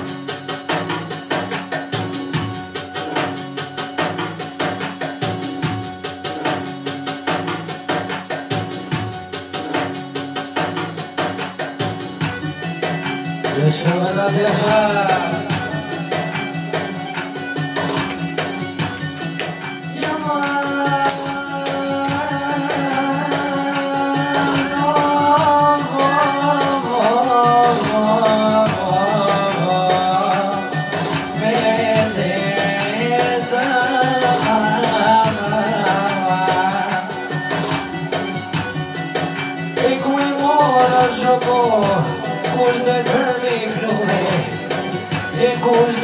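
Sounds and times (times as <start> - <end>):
instrumental backing with drone: 0.0 - 46.0
man singing into microphone: 13.5 - 16.4, 19.9 - 37.8, 39.7 - 46.0.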